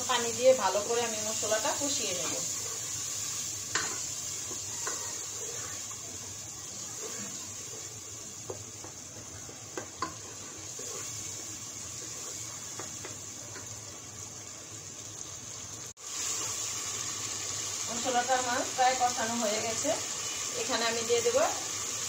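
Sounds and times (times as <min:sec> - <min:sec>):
paste sizzling in a pot: 0:00.0 - 0:22.0
wooden spoon stirring: 0:01.7 - 0:13.7.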